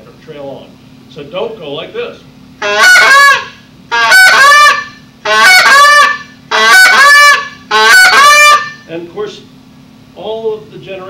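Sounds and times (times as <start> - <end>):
goose call blown: 2.6 - 8.9.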